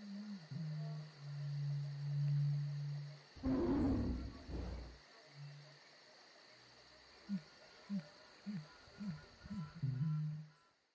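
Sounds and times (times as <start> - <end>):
insects chirring: 0.0 - 10.9
short low rising and falling calls: 3.4 - 4.9
low rumbling burst: 3.4 - 5.0.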